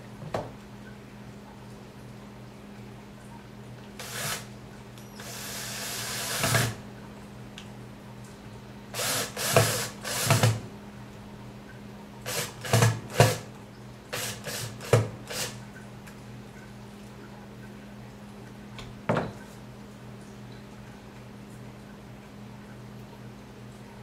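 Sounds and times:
cordless drill driving screws: 0:04.0 - 0:04.5, 0:05.2 - 0:06.8, 0:09.0 - 0:10.6, 0:12.3 - 0:13.4, 0:14.2 - 0:15.6.

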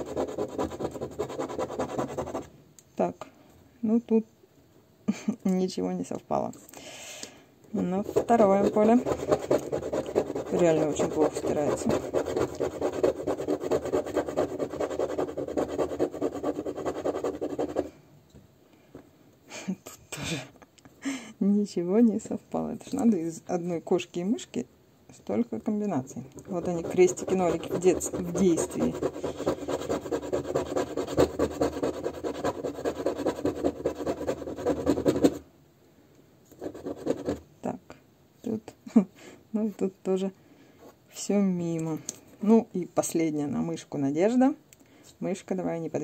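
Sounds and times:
scratching lottery ticket: 0:00.0 - 0:02.4, 0:08.0 - 0:17.9, 0:26.5 - 0:35.4, 0:36.6 - 0:37.4.

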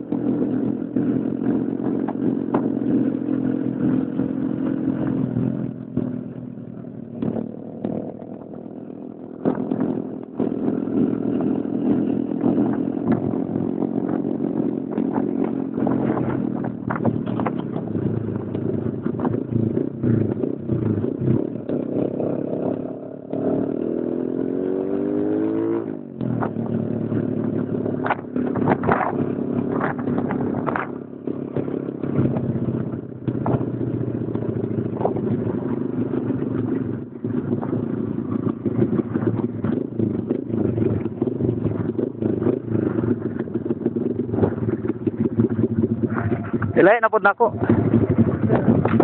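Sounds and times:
motorcycle engine accelerating: 0:00.0 - 0:49.0
clatter and knocks: 0:07.1 - 0:08.5, 0:14.9 - 0:22.1, 0:27.9 - 0:46.8, 0:47.5 - 0:49.0
wind noise: 0:09.3 - 0:22.8, 0:23.7 - 0:49.0.

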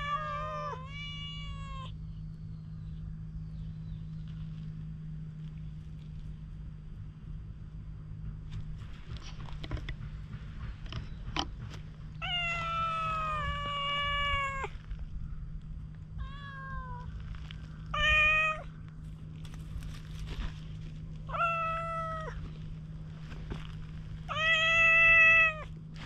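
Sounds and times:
cat meowing: 0:00.0 - 0:02.0, 0:12.2 - 0:14.8, 0:16.2 - 0:17.1, 0:17.9 - 0:18.7, 0:21.3 - 0:22.4, 0:24.3 - 0:25.7.

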